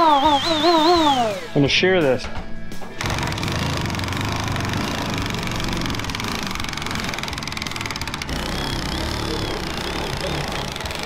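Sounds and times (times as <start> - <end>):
cordless drill motor whirring: 3.0 - 11.0
metal shear chattering: 3.0 - 11.0.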